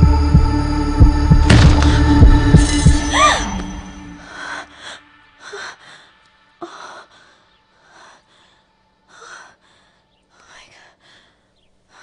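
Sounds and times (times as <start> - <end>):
person breathing heavily: 4.2 - 12.0.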